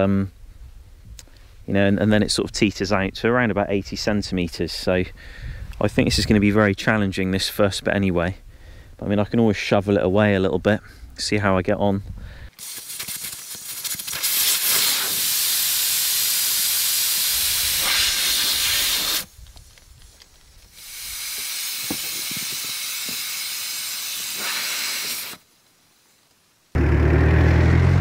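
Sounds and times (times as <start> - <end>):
air hissing out of tyre valve: 12.5 - 19.4, 20.6 - 25.5.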